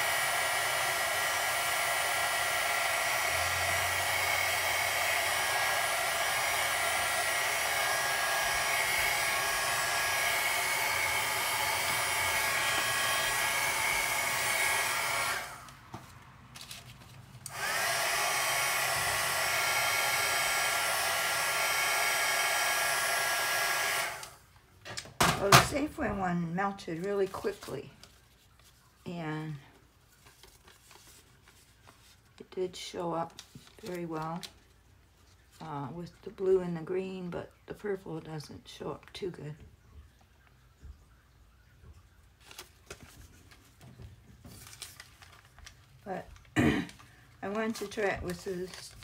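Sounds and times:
heat gun blowing: 0.0 - 15.8, 17.4 - 24.5.

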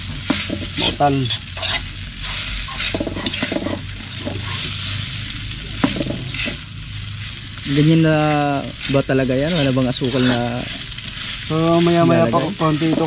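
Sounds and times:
cooking hiss: 0.0 - 13.0
metal spoon scraping wok: 0.3 - 5.1, 5.8 - 7.4, 8.6 - 11.3.

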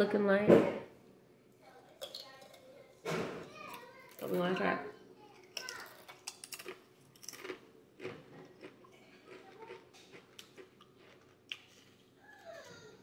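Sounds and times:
person crunching chips: 5.5 - 12.2.

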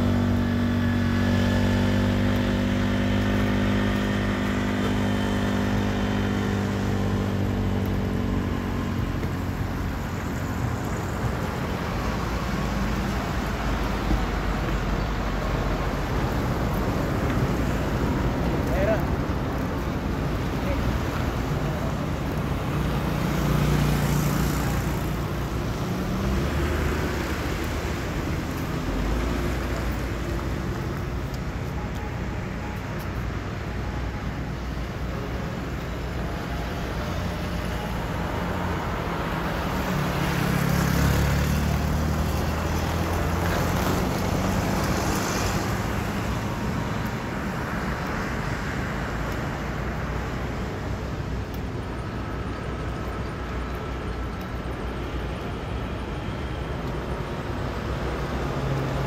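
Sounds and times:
vehicles passing on road: 0.0 - 59.0.

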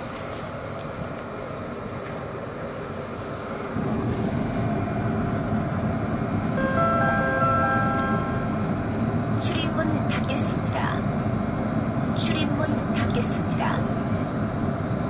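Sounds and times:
train car low rumble: 0.0 - 15.0
electronic chime tones: 6.6 - 8.7.

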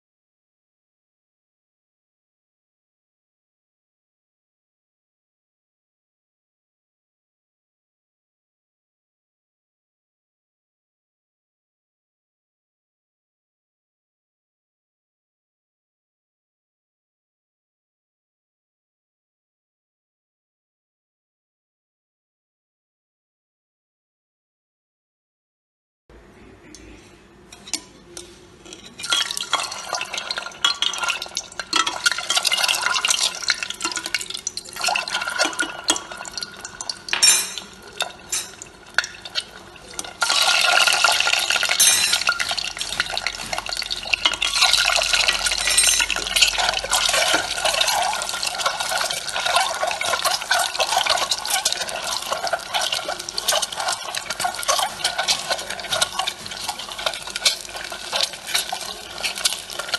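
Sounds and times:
oil crackling and sizzling: 27.6 - 59.9.

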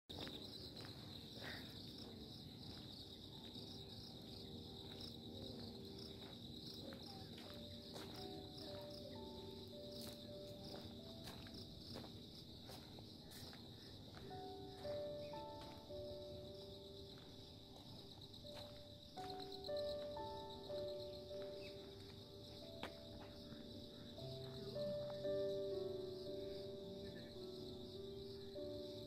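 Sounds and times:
insects trilling: 0.1 - 29.0.

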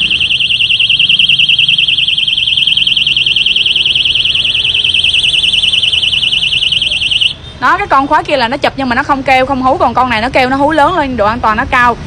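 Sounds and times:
warbling electronic alarm siren: 0.0 - 7.4.

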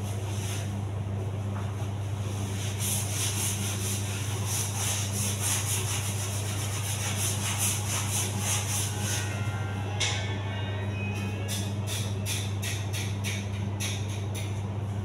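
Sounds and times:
steady low hum: 0.0 - 15.0
pad scrubbing floor tile: 2.2 - 9.5.

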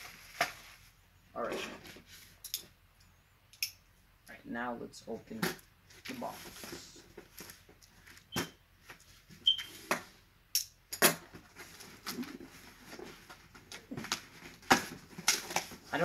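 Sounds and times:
brief squeak: 8.3 - 8.6, 9.4 - 9.8.

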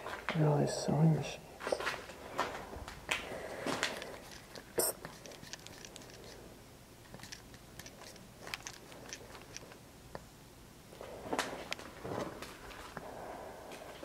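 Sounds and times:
footsteps on debris: 1.6 - 4.7.

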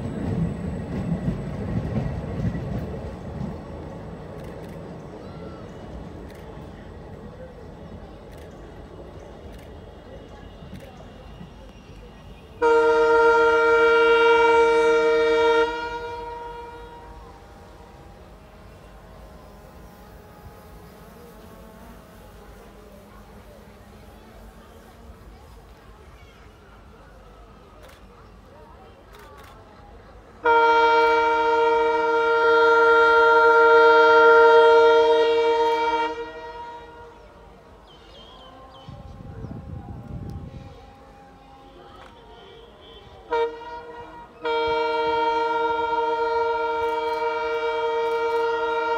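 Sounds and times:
train horn blast: 9.6 - 25.3, 30.2 - 48.9.

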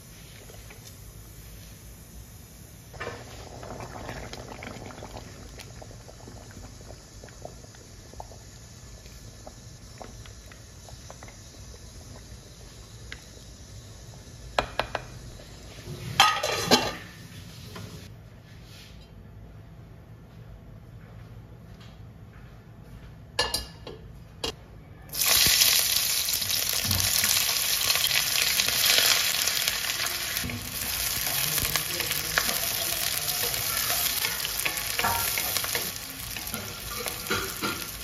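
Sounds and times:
porridge bubbling in pot: 0.0 - 16.7, 25.1 - 38.0
cookware clattering: 16.2 - 17.1, 34.6 - 38.0.

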